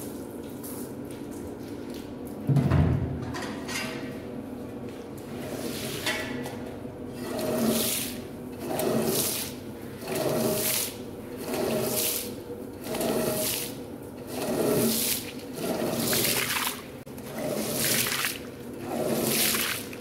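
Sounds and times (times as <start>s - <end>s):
squeegee pushing water across tiles: 7.1s - 20.0s.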